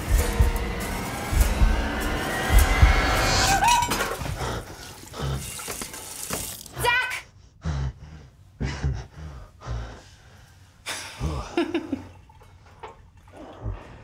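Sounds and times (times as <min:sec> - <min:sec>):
person breathing with grunts: 0:04.2 - 0:06.0.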